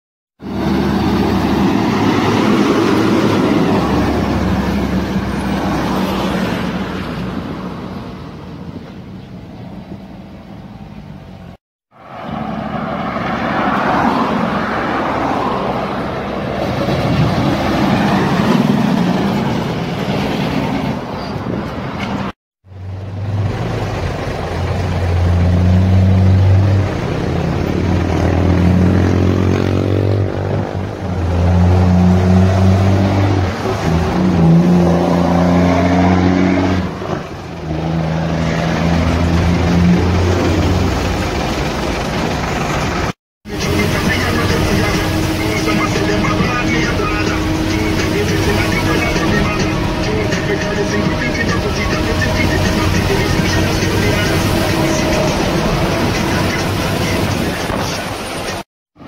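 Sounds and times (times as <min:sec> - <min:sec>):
heavy diesel trucks passing: 0:00.4 - 0:59.0.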